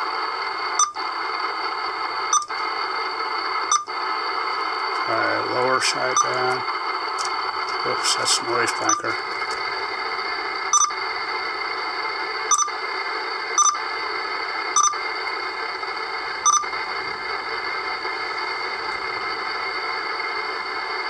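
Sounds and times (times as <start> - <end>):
radio static hiss: 0.0 - 21.0
short beeps: 6.0 - 6.6, 10.7 - 11.0, 12.5 - 12.7, 13.6 - 13.8, 14.8 - 15.0, 16.4 - 16.7.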